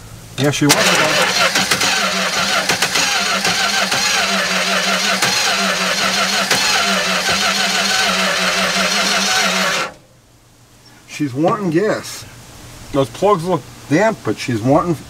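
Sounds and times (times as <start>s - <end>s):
engine cranking on starter: 0.4s - 10.0s.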